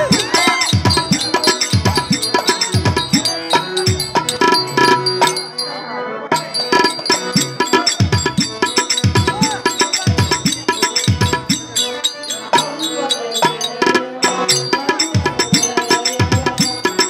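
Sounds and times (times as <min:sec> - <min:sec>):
hand drum with bending bass: 0:00.0 - 0:05.4, 0:06.8 - 0:11.8, 0:13.7 - 0:17.0
held tone: 0:00.0 - 0:17.0.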